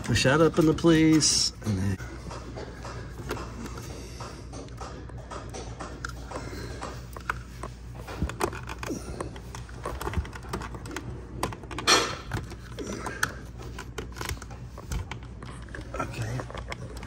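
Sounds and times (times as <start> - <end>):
plastic clicks and rattles: 4.7 - 17.0.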